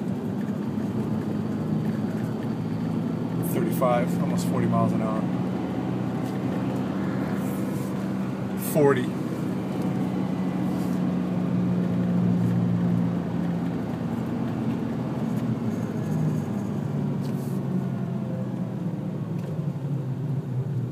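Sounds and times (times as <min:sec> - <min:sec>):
car engine hum: 0:00.0 - 0:20.9
tyre and road noise: 0:00.0 - 0:20.9.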